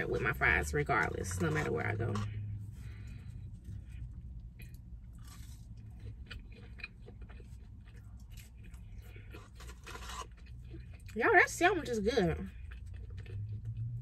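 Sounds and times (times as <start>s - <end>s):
steady low hum: 0.0s - 14.0s
food crunching: 3.1s - 11.8s, 12.4s - 14.0s
person chewing and biting food: 3.4s - 11.2s, 12.5s - 14.0s.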